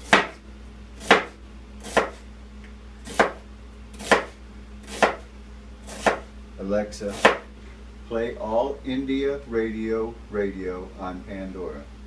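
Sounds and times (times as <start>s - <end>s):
knife chopping on cutting board: 0.0s - 0.4s, 1.0s - 2.2s, 3.0s - 3.4s, 4.0s - 5.3s, 5.9s - 6.3s, 7.1s - 7.5s.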